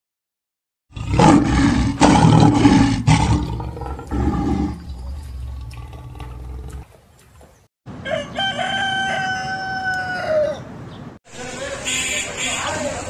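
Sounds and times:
lion grunting: 0.9s - 6.9s
lion roaring: 0.9s - 6.9s.

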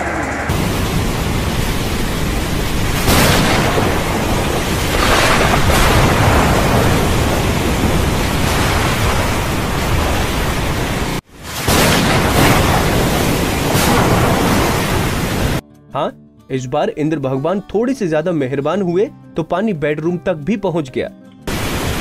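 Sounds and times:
loud rushing noise: 0.0s - 11.2s.

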